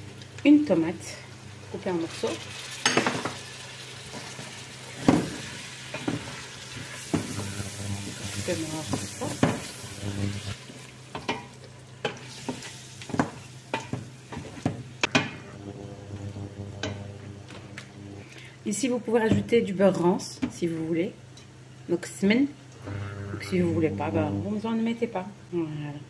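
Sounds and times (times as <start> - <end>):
food sizzling in oil: 0.0 - 18.3
spoon knocking and scraping pot: 8.8 - 9.7, 16.8 - 17.6.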